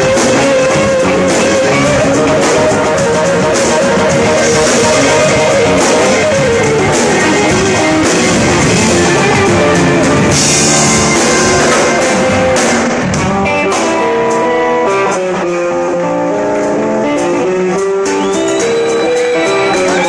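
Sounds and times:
drum kit: 0.0s - 20.0s
electric bass: 0.0s - 20.0s
electric guitar: 0.0s - 20.0s
cymbals ringing: 8.0s - 13.1s.

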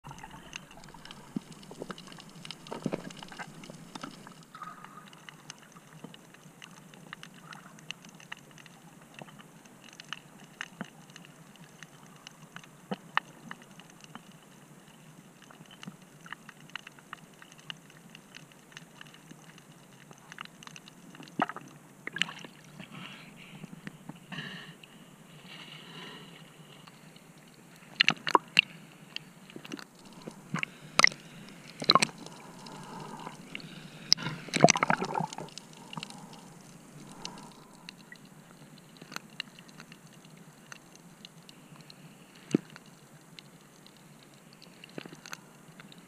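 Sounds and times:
water splashing: 0.0s - 6.0s, 21.2s - 23.8s, 29.4s - 39.9s
sharp clicks and crackles: 0.1s - 22.3s, 26.8s - 46.0s
underwater hiss: 30.0s - 38.2s.

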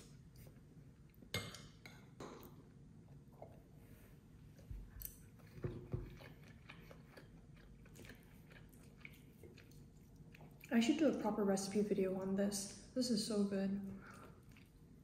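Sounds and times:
faint chewing: 4.4s - 11.3s, 13.8s - 15.0s.

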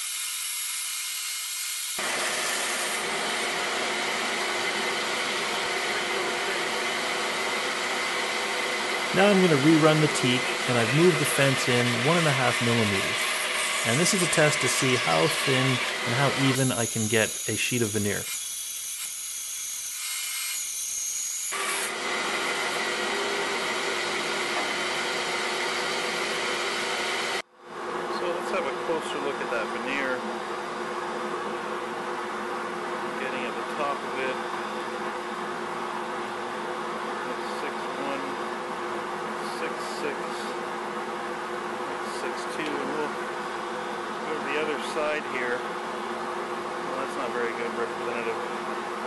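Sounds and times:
bandsaw cutting wood: 0.0s - 27.4s.

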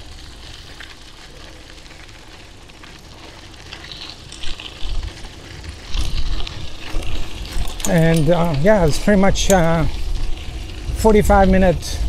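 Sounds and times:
bike tyres hissing on path: 0.0s - 12.0s
wind buffeting microphone: 4.8s - 12.0s.

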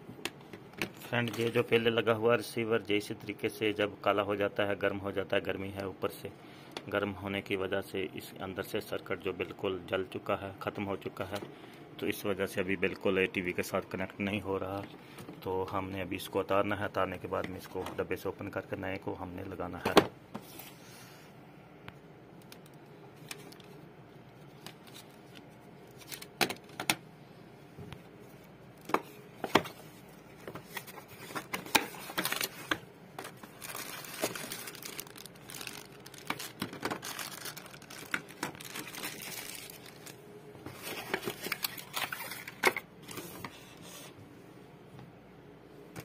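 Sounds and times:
plastic bags crinkling: 30.6s - 42.7s.

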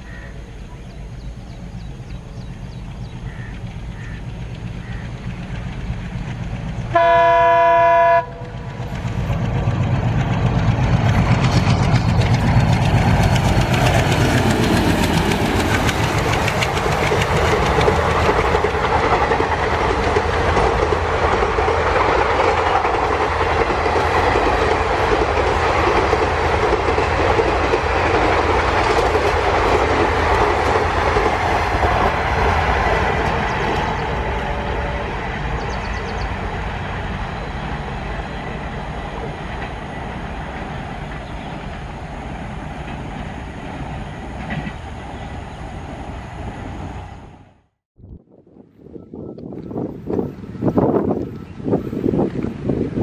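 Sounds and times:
locomotive engine drone passing: 0.0s - 47.8s
train wheels clattering over rail joints: 2.6s - 7.0s, 8.4s - 34.6s, 35.5s - 44.9s
locomotive multi-tone horn: 6.9s - 8.9s, 34.0s - 35.4s.

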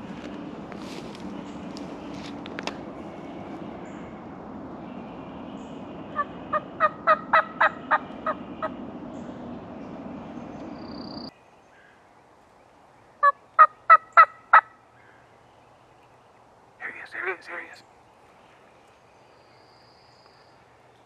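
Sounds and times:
turkey yelping: 6.2s - 8.7s, 13.2s - 14.7s.

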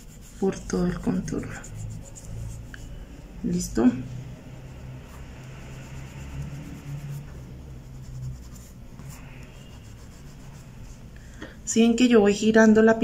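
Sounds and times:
fingertip rubbing craft foam: 0.0s - 3.0s, 4.2s - 11.1s
low steady hum: 0.0s - 13.0s.

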